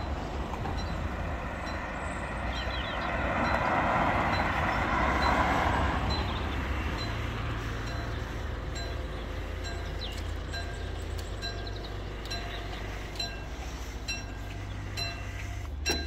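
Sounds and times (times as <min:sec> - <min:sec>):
car driving past: 0:00.0 - 0:08.7
low rumble of traffic: 0:00.0 - 0:16.0
wind: 0:00.0 - 0:16.0.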